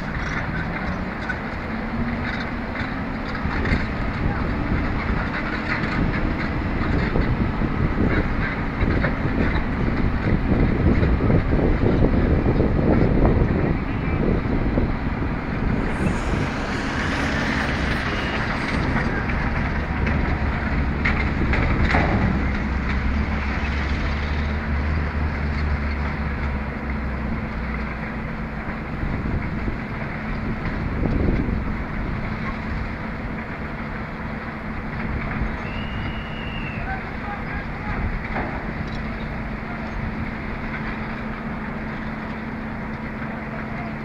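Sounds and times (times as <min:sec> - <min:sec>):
crane diesel engine humming: 0:11.4 - 0:30.9, 0:31.6 - 0:44.0.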